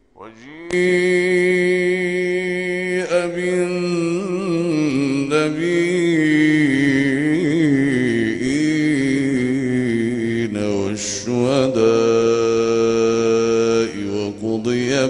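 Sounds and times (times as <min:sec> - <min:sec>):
man reciting melodically: 0:00.0 - 0:15.0.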